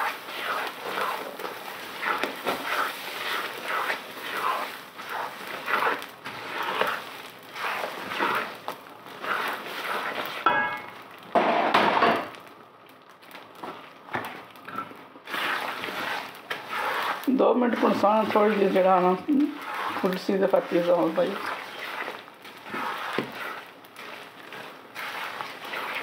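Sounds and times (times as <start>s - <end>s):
wooden spatula scraping a wok: 0.0s - 12.4s, 13.4s - 26.0s.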